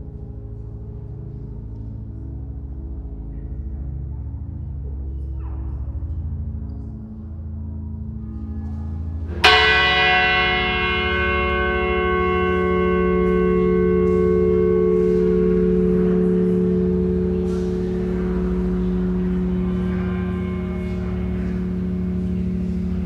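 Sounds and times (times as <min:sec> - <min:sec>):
low steady drone: 0:00.0 - 0:23.0
large bell ringing: 0:09.3 - 0:23.0.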